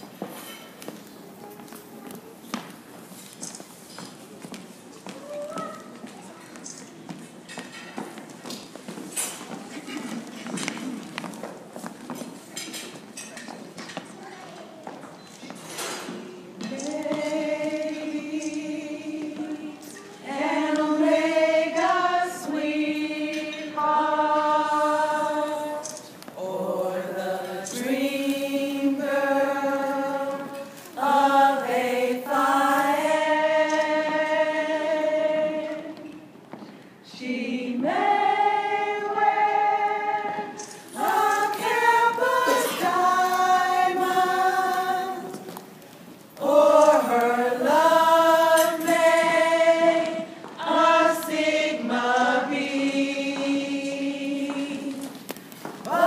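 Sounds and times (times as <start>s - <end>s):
group of voices singing: 16.6s - 36.3s, 37.1s - 45.7s, 46.4s - 56.0s.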